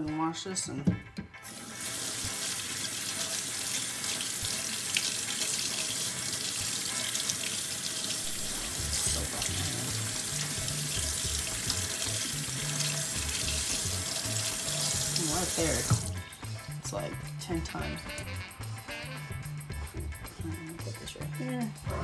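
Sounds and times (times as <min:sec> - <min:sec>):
faucet water splashing into metal sink: 0:01.4 - 0:16.3.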